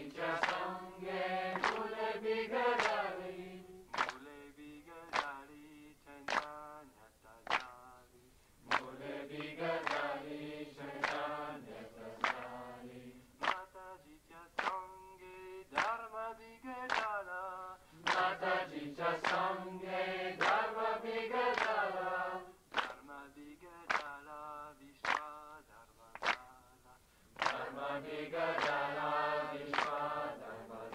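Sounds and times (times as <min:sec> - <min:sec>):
voices singing a devotional song: 0:00.0 - 0:30.9.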